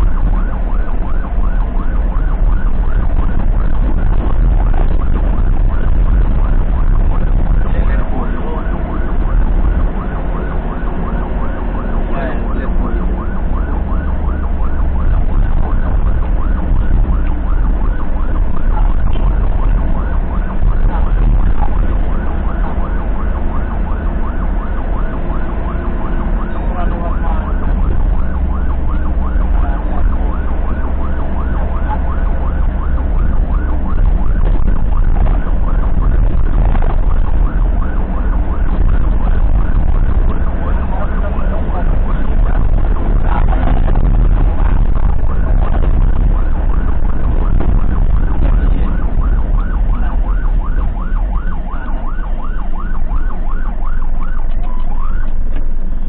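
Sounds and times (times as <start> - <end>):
ambulance siren: 0.0 - 56.0
engine and road rumble: 0.0 - 56.0.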